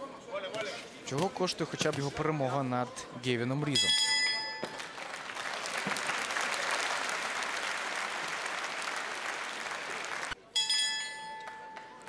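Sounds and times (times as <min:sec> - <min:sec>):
arena crowd applauding: 0:04.6 - 0:10.4.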